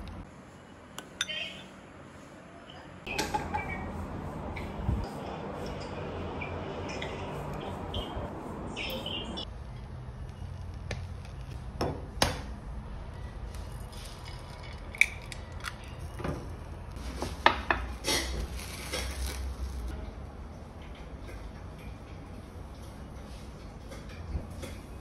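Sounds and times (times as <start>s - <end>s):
plastic wrap crinkling: 18.1s - 19.9s.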